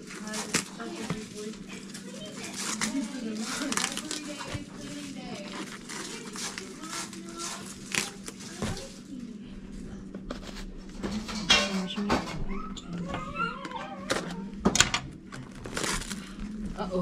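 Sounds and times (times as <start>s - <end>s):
cabbage leaves pulled apart: 0.0s - 9.1s, 15.3s - 16.4s
crinkly plastic handling: 0.0s - 9.4s, 10.1s - 17.0s
low steady hum: 0.0s - 17.0s.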